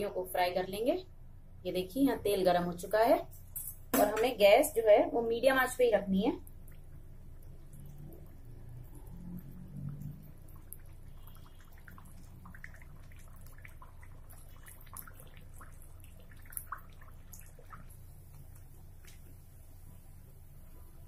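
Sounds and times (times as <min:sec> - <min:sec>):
food deep-frying in sizzling oil: 0:05.5 - 0:21.0.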